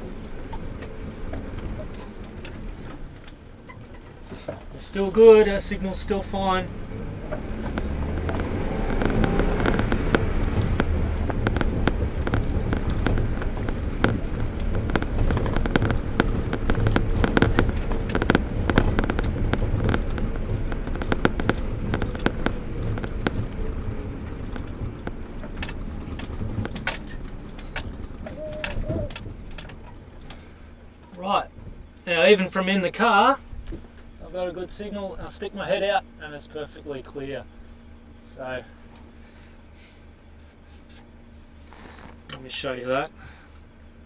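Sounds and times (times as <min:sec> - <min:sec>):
car engine and road rumble: 0:00.0 - 0:44.0
car knocking and rattling: 0:00.0 - 0:44.0.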